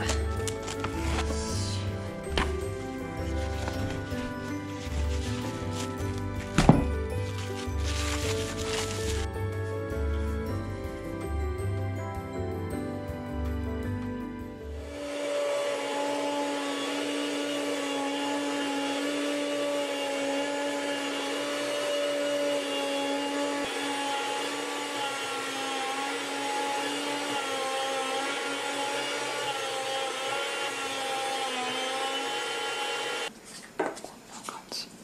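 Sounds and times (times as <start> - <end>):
electric food slicer motor humming: 0.0 - 9.3, 14.7 - 33.3.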